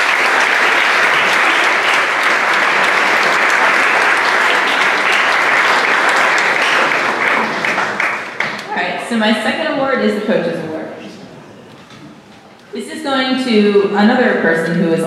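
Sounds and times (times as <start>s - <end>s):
audience clapping: 0.0s - 8.8s.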